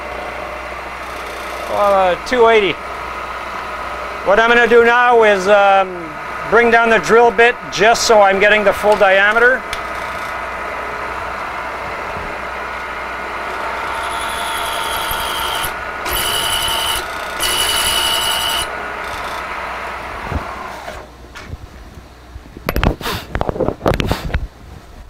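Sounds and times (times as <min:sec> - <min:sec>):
high-pitched cutting whine: 0:00.0 - 0:21.1
milling machine drilling metal: 0:00.9 - 0:02.3, 0:08.7 - 0:10.5, 0:13.3 - 0:19.8.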